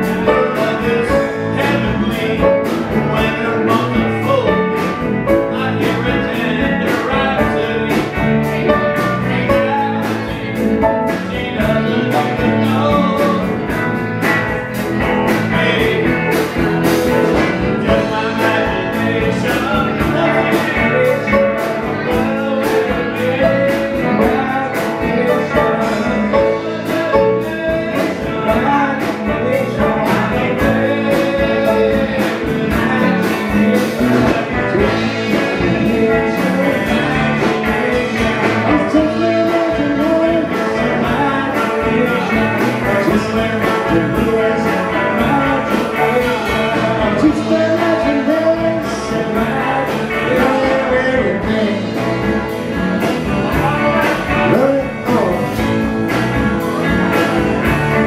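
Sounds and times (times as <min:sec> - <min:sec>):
person singing: 0:00.0 - 0:56.0
live band playing: 0:00.0 - 0:58.0.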